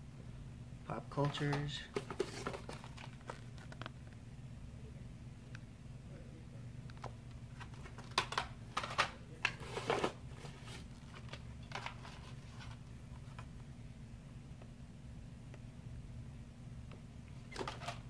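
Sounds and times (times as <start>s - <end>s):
steady low hum: 0.0s - 18.0s
packaging clicking and rustling: 1.2s - 4.2s, 6.9s - 13.5s.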